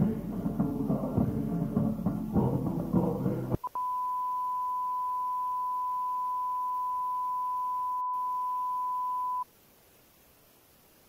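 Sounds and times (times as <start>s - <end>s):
high pure test tone: 2.3s - 9.4s.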